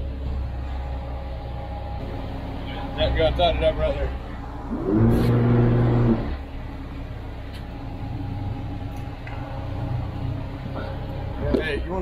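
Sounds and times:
engines low steady hum: 0:00.0 - 0:12.0
loud pitched machinery hum: 0:00.0 - 0:12.0.

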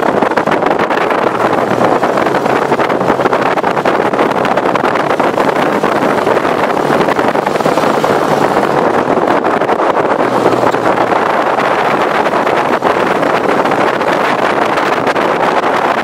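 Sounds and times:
dune buggy engine: 0:00.0 - 0:16.0
wind buffeting microphone: 0:00.0 - 0:16.0.

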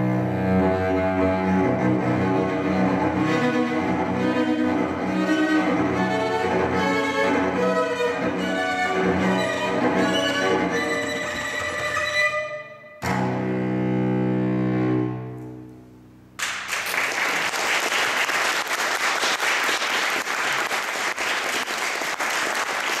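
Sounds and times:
cello chord bowed: 0:00.0 - 0:16.4
audience applause: 0:16.4 - 0:23.0.

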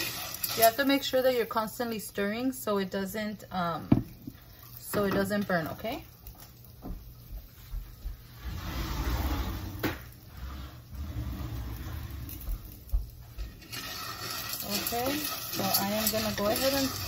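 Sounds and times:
pasta sizzling in oil: 0:00.0 - 0:08.5, 0:12.3 - 0:17.0
wooden spoon scraping pan: 0:13.4 - 0:17.0.

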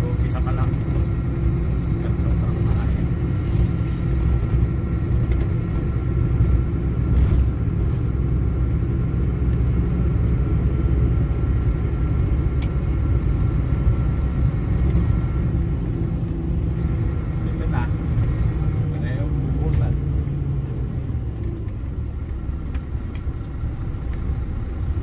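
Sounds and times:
engine and tyres rumbling: 0:00.0 - 0:25.0.

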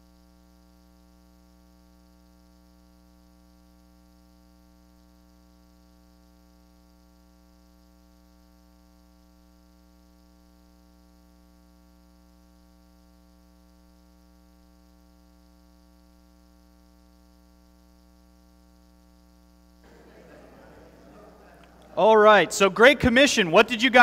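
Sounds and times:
faint recording hum and hiss: 0:18.8 - 0:24.0.

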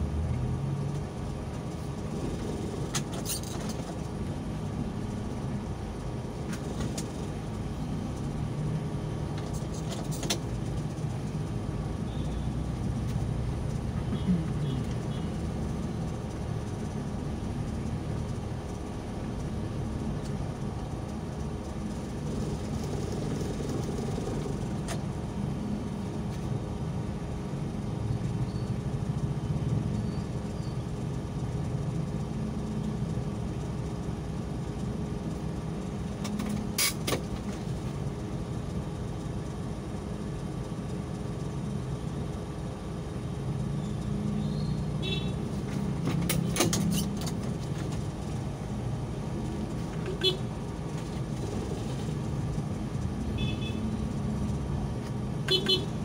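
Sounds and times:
car engine rumble: 0:00.0 - 0:56.0
road noise: 0:00.0 - 0:56.0.

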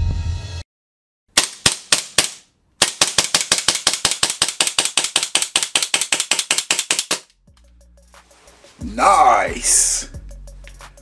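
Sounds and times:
airsoft pistol rapid fire: 0:01.4 - 0:07.3.

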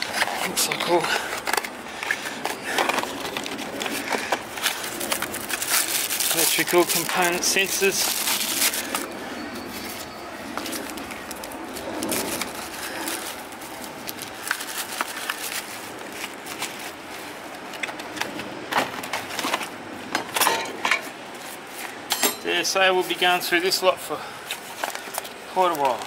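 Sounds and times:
plastic bags crinkling: 0:00.0 - 0:18.4.

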